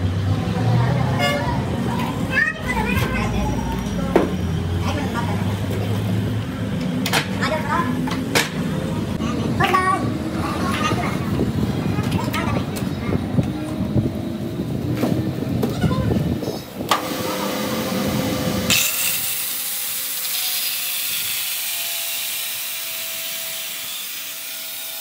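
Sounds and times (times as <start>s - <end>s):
angle grinder grinding metal: 17.0s - 25.0s.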